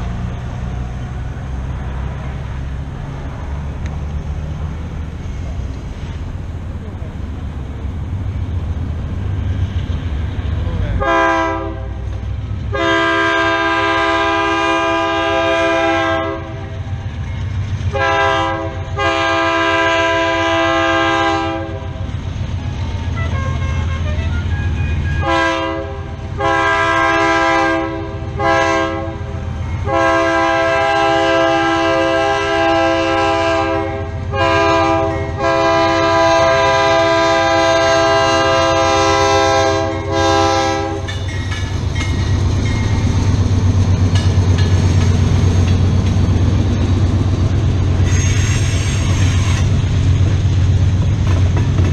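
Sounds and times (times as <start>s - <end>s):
low train rumble: 0.0s - 51.9s
locomotive air horn blasts: 11.0s - 12.0s, 12.7s - 16.7s, 17.9s - 22.0s, 23.2s - 41.1s, 48.0s - 49.7s.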